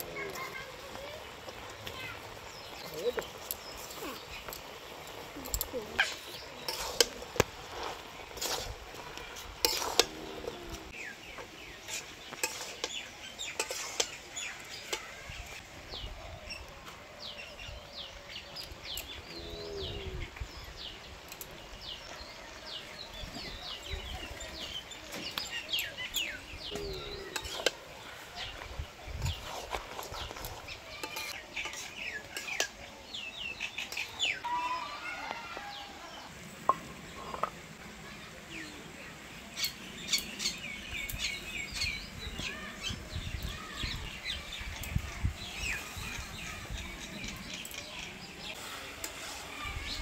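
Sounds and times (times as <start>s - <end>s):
small birds chirping: 0.0s - 50.0s
metal spatula scraping a pan: 5.1s - 11.0s, 11.8s - 15.1s, 27.3s - 27.8s, 30.9s - 32.8s, 48.5s - 50.0s.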